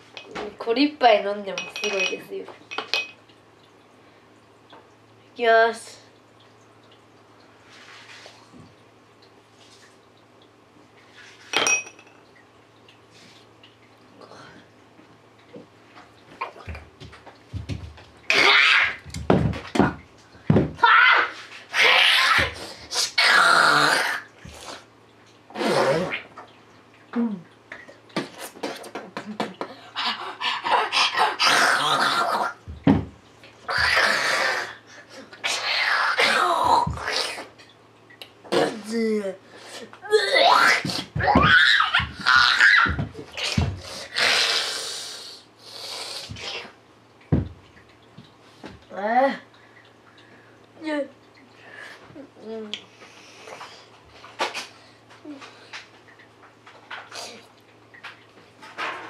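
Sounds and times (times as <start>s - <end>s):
boy yelping and crying: 20.8s - 22.6s.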